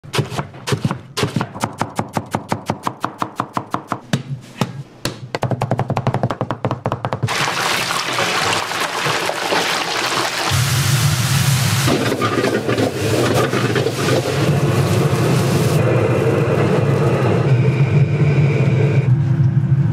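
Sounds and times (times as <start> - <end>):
knife chopping on cutting board: 0.0 - 7.3
food sizzling in a wok: 7.3 - 15.8.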